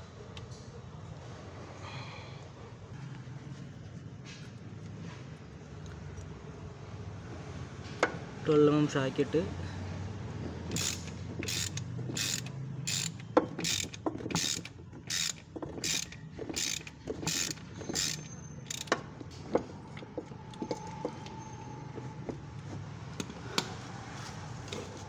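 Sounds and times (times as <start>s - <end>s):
ratchet wrench ratcheting: 10.7s - 19.1s.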